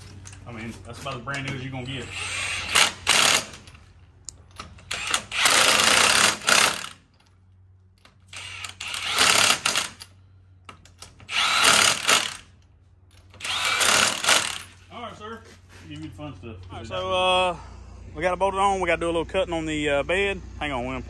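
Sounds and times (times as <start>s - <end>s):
impact wrench hammering on lug nuts: 2.2s - 3.7s, 4.7s - 7.1s, 8.3s - 10.1s, 11.1s - 12.6s, 13.3s - 14.8s.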